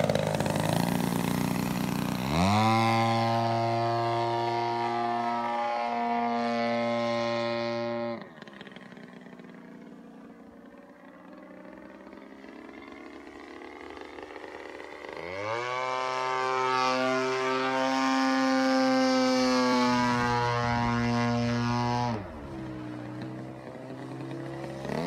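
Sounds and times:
propeller plane engine drone: 0:00.0 - 0:25.0.

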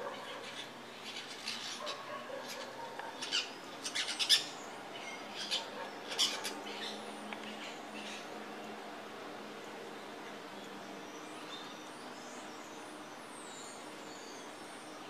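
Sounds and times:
parrots calling: 0:05.3 - 0:06.9.

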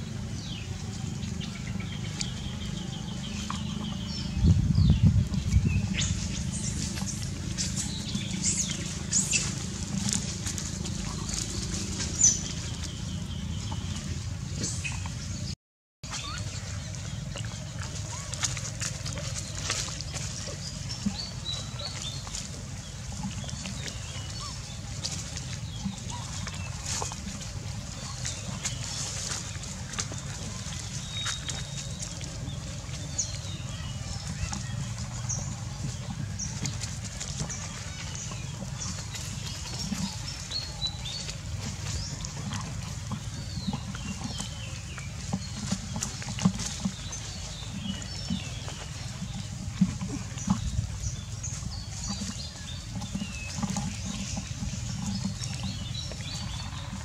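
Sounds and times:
low rumble: 0:00.0 - 0:15.6
rustling in dry leaves: 0:04.1 - 0:15.4, 0:16.1 - 0:57.0.

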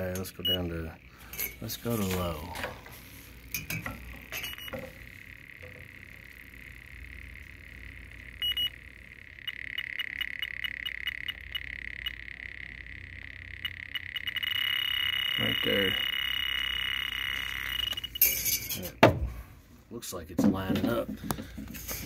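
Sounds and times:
leak detector ticking: 0:00.0 - 0:02.6, 0:03.4 - 0:18.3
steady high electronic tone: 0:00.0 - 0:18.8
clicks: 0:15.2 - 0:18.2.

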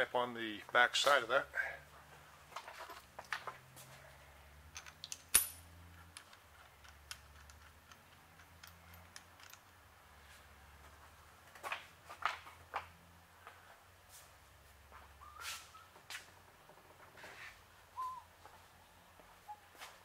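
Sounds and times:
metallic clinks and taps: 0:04.7 - 0:09.8.

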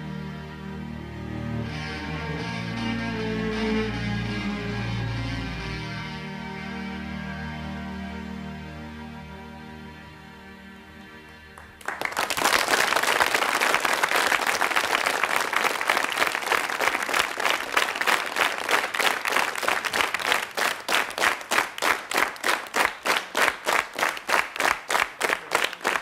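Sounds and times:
audience applauding: 0:11.6 - 0:26.0
clapping in unison: 0:11.6 - 0:26.0.

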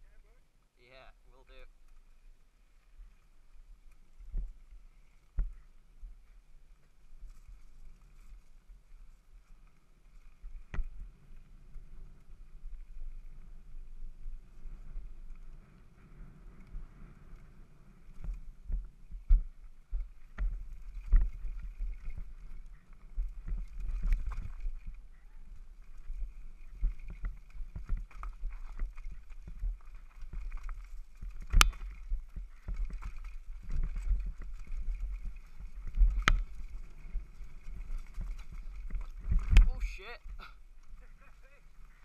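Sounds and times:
wind on microphone: 0:10.1 - 0:42.0
bike knocking and rattling: 0:18.1 - 0:39.7.

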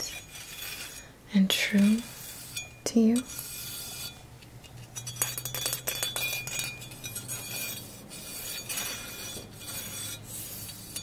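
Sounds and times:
small hard objects clinking: 0:04.8 - 0:07.8.

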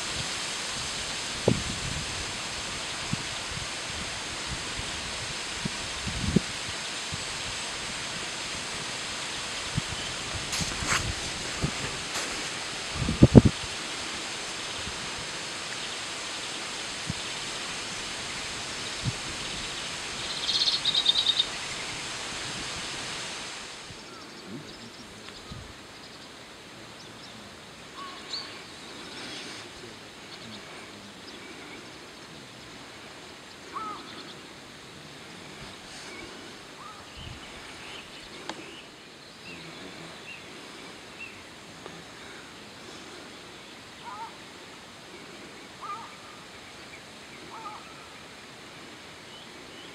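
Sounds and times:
steady rushing noise: 0:00.0 - 0:49.9
bird twitter: 0:20.2 - 0:21.8
faint bird calls: 0:23.9 - 0:49.9.

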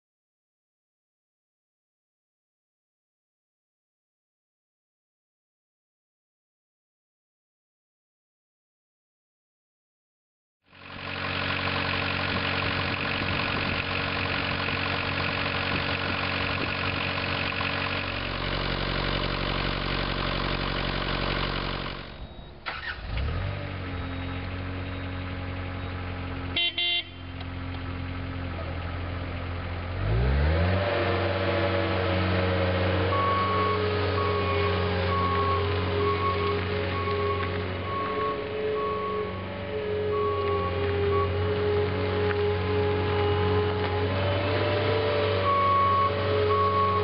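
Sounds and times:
diesel engine running and revving: 0:10.7 - 0:47.0
short horn beeps: 0:26.6 - 0:27.4.

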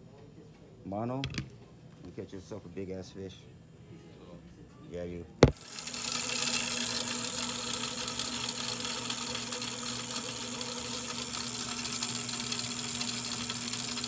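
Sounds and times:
line-spooling machine whirring: 0:05.4 - 0:14.0.

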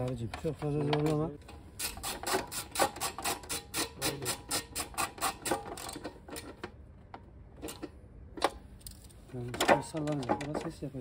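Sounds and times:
ratchet wrench clicking: 0:01.8 - 0:06.6.

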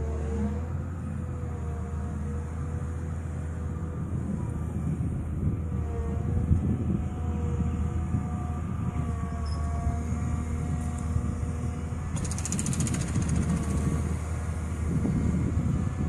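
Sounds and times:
excavator diesel engine whining: 0:00.0 - 0:16.0
fast high rattle: 0:12.2 - 0:13.8.

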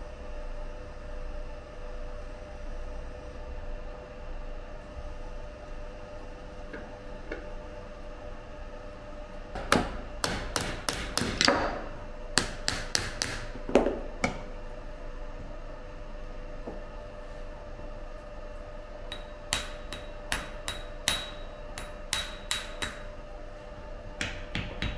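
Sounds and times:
mallet striking metal mould: 0:09.6 - 0:11.8, 0:12.4 - 0:14.4, 0:19.1 - 0:23.1, 0:24.2 - 0:24.9.

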